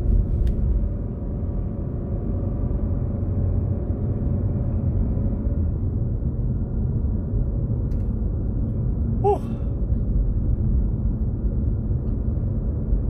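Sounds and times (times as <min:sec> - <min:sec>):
car engine and tyres rumbling: 0:00.0 - 0:13.0
short human vocal sound: 0:09.2 - 0:09.7.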